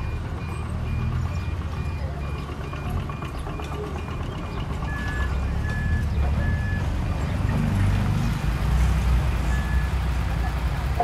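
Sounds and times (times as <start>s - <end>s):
slow low reversing beep: 0.0s - 6.9s, 9.4s - 10.0s
diesel engines running: 0.0s - 11.0s
fast high reversing beep: 4.0s - 6.9s, 9.5s - 10.0s.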